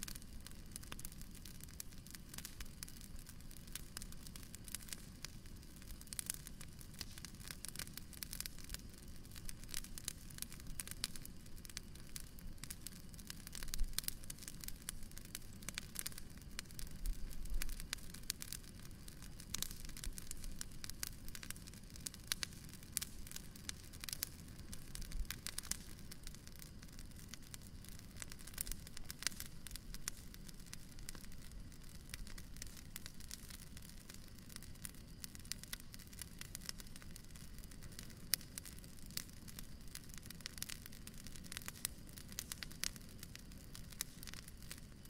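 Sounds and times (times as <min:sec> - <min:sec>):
wood bonfire crackling: 0:00.0 - 0:45.0.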